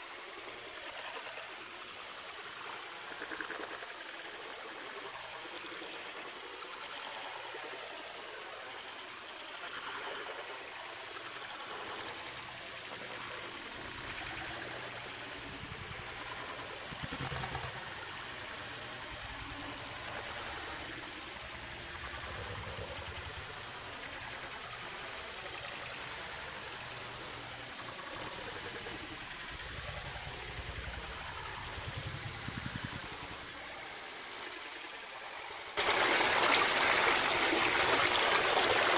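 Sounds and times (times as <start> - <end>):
fountain water splashing: 7.9 - 38.9.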